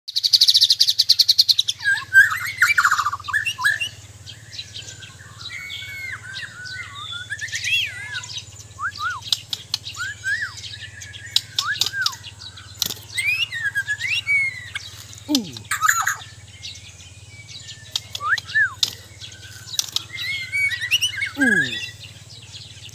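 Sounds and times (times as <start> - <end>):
bird singing high trill: 0.2 - 22.9
bird whistling varied notes: 4.6 - 15.0, 15.6 - 16.9, 17.6 - 22.0
sharp bird clicks: 8.9 - 10.0, 11.2 - 16.2, 17.8 - 21.8.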